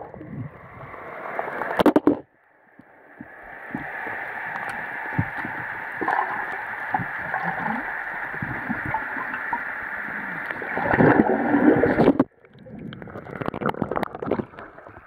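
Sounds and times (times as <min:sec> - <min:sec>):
muffled underwater noise: 0:00.0 - 0:15.0
small gurgles: 0:04.5 - 0:15.0.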